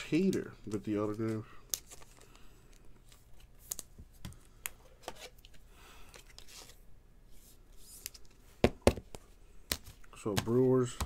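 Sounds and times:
plastic sleeve rustling: 0:00.2 - 0:04.1.

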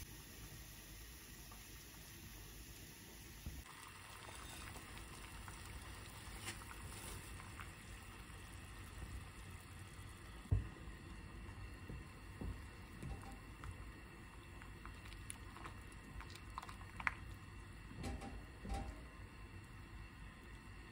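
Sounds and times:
water boiling in a pot: 0:00.0 - 0:20.9
low thump: 0:10.5 - 0:10.9.

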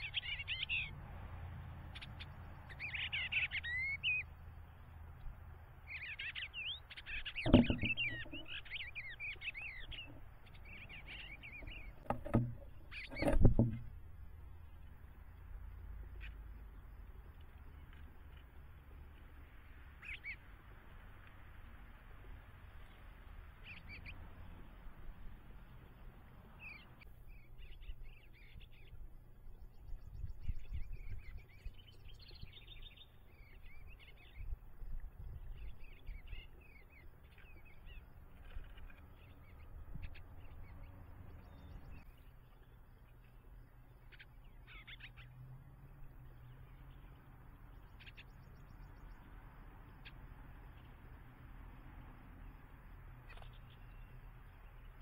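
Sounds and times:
songbirds chirping: 0:00.0 - 0:55.0.

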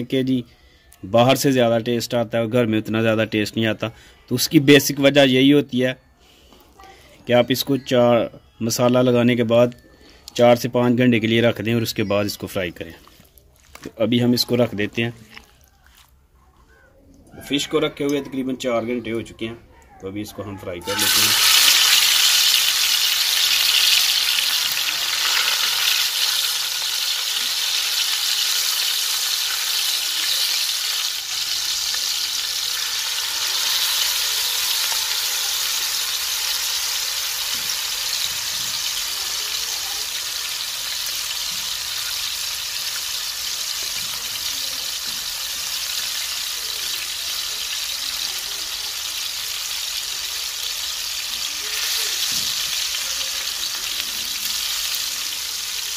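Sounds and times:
fish sizzling in hot oil: 0:20.8 - 0:55.9.

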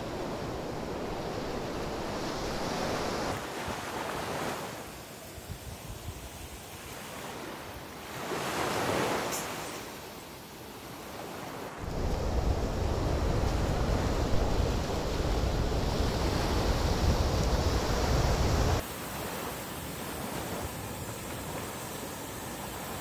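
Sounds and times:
surf washing on beach: 0:00.0 - 0:23.0
wind buffeting microphone: 0:11.8 - 0:18.8.

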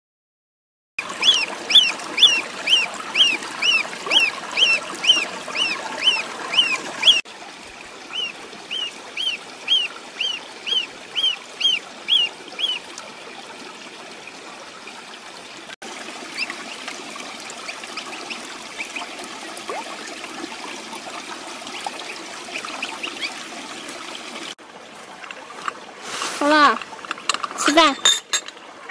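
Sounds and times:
ducklings peeping: 0:01.2 - 0:07.2, 0:08.1 - 0:12.8.

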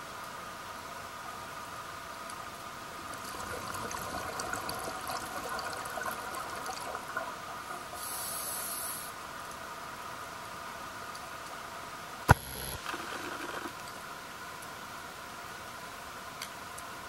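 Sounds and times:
underwater hiss and hum: 0:03.1 - 0:09.2, 0:12.3 - 0:13.8
scuba regulator hiss: 0:08.0 - 0:09.2.

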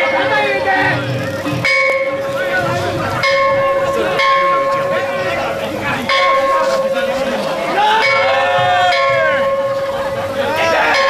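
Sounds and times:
metal bell ringing: 0:01.4 - 0:02.4, 0:03.2 - 0:11.0.

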